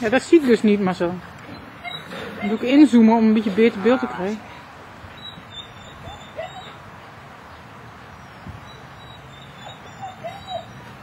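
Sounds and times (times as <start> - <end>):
puppy whimpering: 1.5 - 3.0, 5.2 - 6.8, 9.0 - 10.9.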